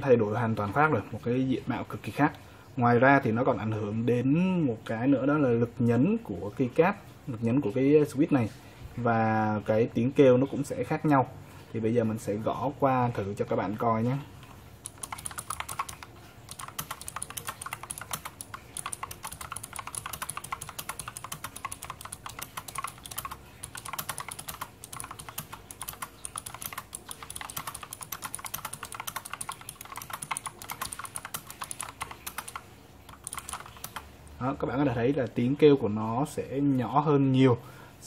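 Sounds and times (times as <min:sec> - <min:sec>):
mechanical keyboard typing: 0:14.4 - 0:34.1.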